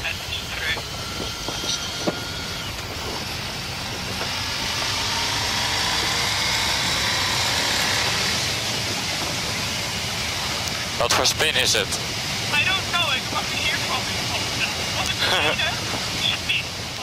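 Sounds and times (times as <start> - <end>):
motorcycle engine accelerating: 0.0 - 16.3.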